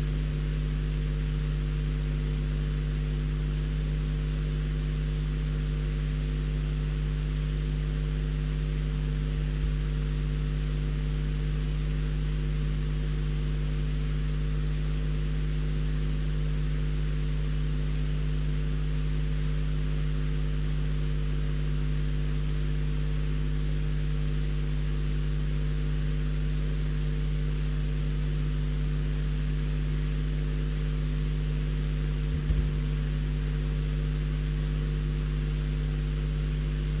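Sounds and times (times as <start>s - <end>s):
electrical hum with hiss: 0.0s - 37.0s
low knock: 32.3s - 32.8s.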